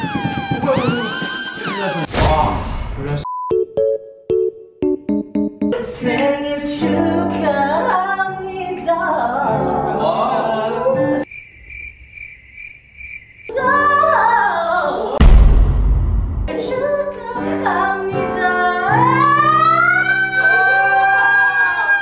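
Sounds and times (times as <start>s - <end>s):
keyboard accompaniment: 3.5s - 8.1s
loud low rumble: 15.2s - 16.5s.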